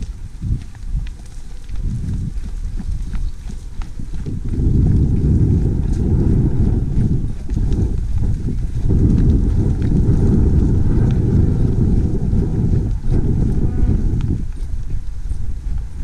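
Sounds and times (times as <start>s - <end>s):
cattle herd moving: 0.0s - 16.0s
wind on microphone: 0.0s - 16.0s
cow mooing: 13.5s - 14.0s.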